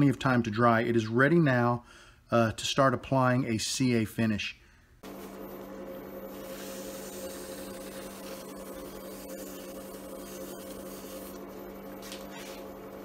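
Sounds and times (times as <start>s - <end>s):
wood lathe humming: 6.3s - 11.7s.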